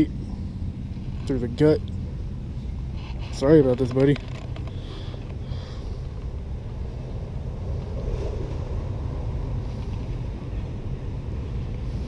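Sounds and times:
wind buffeting microphone: 6.0s - 12.0s.

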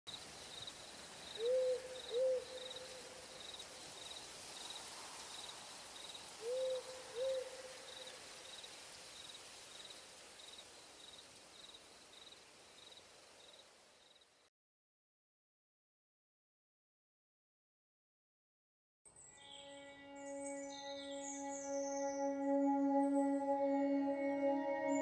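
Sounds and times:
soft hiss: 0.1s - 14.5s.

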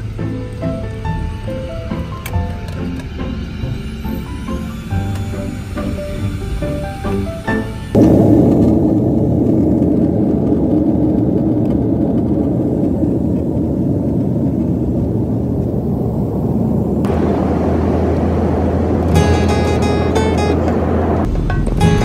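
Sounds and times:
music: 0.0s - 8.0s, 19.0s - 22.0s
jet engine cabin rush: 0.0s - 22.0s.

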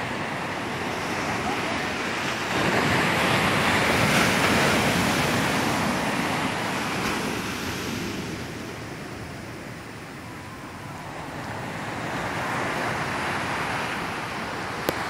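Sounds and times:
sea surf breaking on beach: 0.0s - 15.0s.

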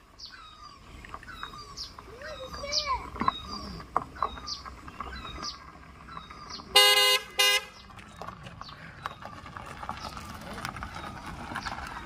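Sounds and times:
van horn honking: 6.7s - 7.8s.

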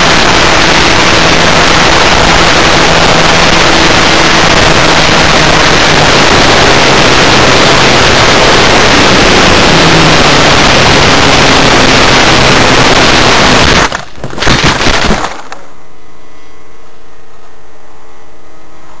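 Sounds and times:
loud wind rush: 0.0s - 13.9s
steady hiss: 0.0s - 13.9s.

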